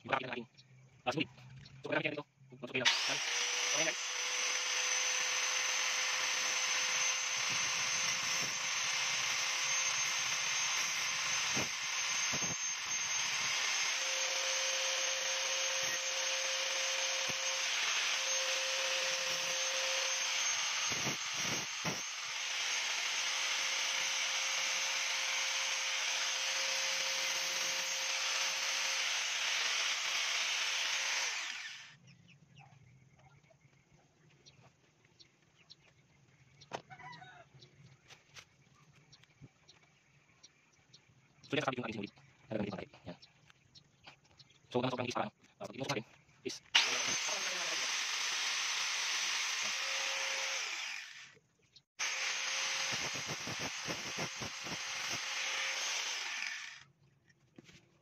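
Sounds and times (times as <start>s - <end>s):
angle grinder grinding steel: 2.9s - 32.0s, 46.8s - 51.4s, 52.0s - 56.8s.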